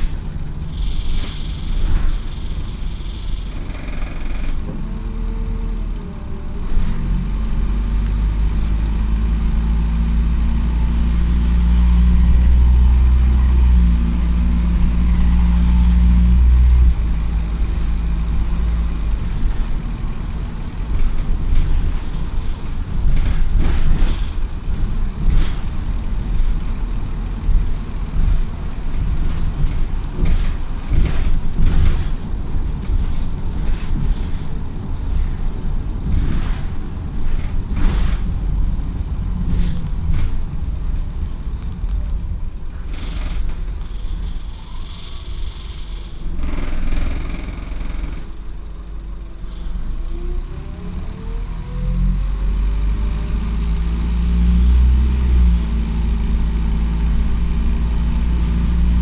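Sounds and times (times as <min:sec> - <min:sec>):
sharp rattles and clicks: 0:00.0 - 0:04.9, 0:20.8 - 0:49.1
bus engine humming: 0:00.0 - 0:59.0.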